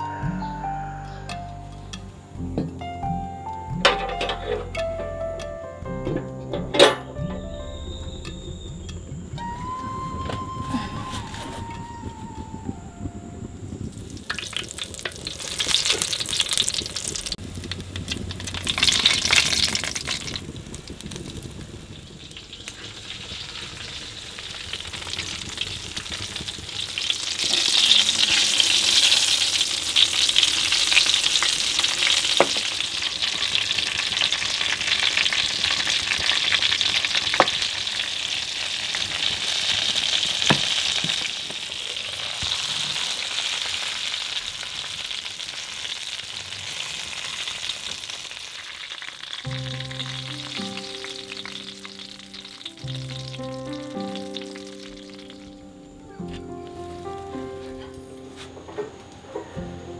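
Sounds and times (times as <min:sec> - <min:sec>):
food sizzling in hot oil: 0:13.6 - 0:55.7.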